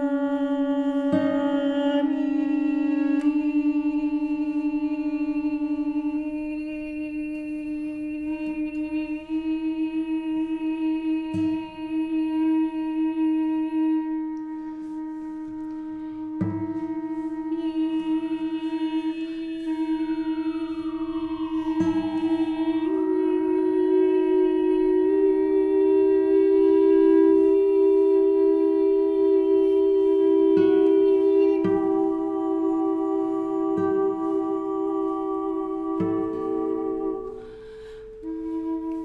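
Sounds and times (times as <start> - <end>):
recorder holding low notes: 0.0 - 37.6.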